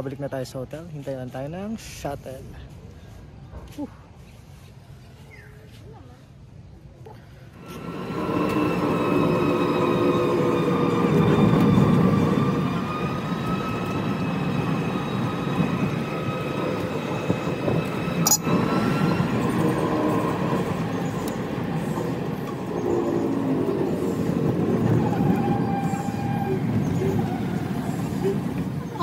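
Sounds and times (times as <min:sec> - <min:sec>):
electric cart driving on road: 0:07.6 - 0:29.0.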